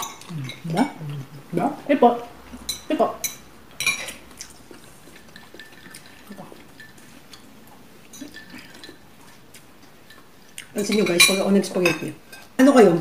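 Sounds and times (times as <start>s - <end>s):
chewing: 0.0s - 1.6s, 4.0s - 10.9s.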